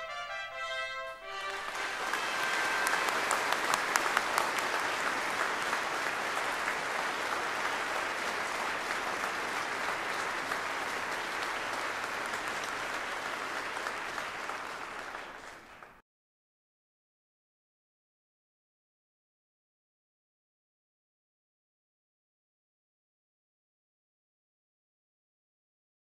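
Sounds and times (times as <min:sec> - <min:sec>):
audience applauding: 0:01.2 - 0:16.0.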